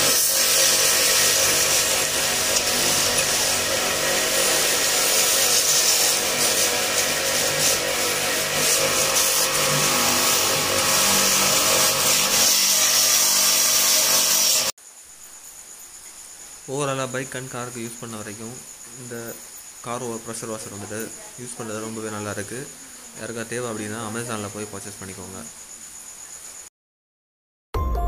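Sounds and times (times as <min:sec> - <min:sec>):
pressure washer motor humming: 0:00.0 - 0:14.7
water jet hissing: 0:00.0 - 0:14.7.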